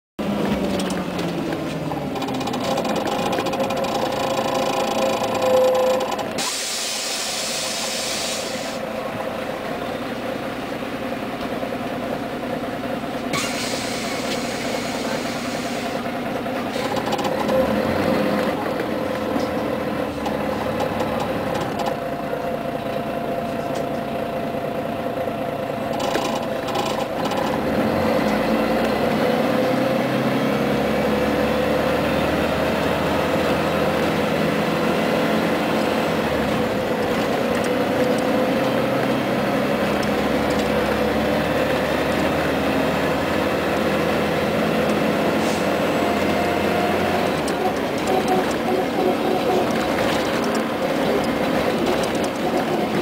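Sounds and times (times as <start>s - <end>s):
bus diesel engine running: 0.2s - 53.0s
air hissing: 6.4s - 8.9s, 13.3s - 16.0s.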